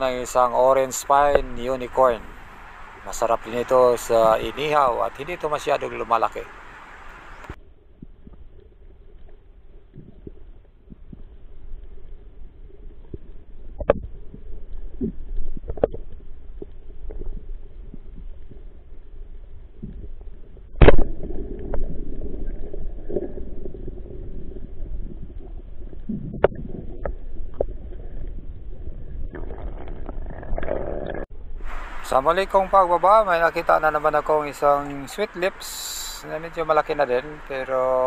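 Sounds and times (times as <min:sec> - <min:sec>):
underwater rumble: 0:00.0 - 0:38.0.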